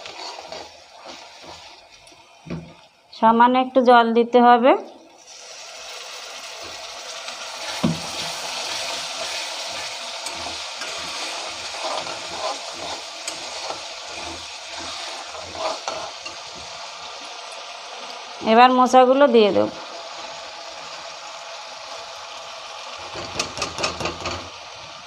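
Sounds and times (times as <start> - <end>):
spatula scraping a pan: 0.0 - 2.2, 7.6 - 17.3, 23.0 - 24.5
masala sizzling in a pan: 0.0 - 3.9, 5.1 - 25.0.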